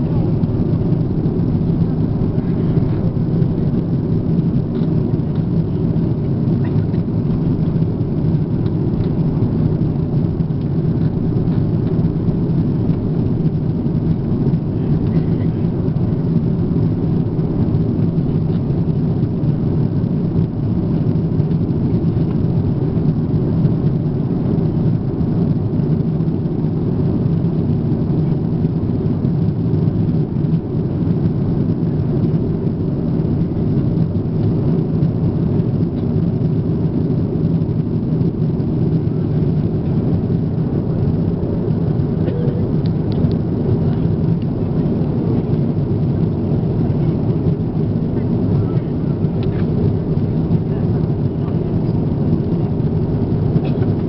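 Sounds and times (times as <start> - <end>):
airliner cabin drone: 0.0 - 54.0.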